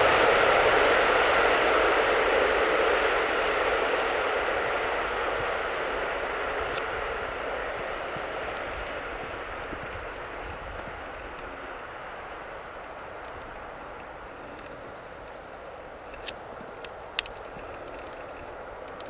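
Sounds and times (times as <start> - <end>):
distant passing vehicle rumble: 0.0 - 19.0
sharp clicks: 5.4 - 19.0.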